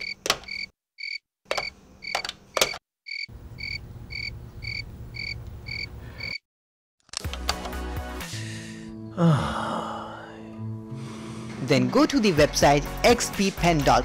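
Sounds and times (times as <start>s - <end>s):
sharp clicks: 1.5s - 2.8s.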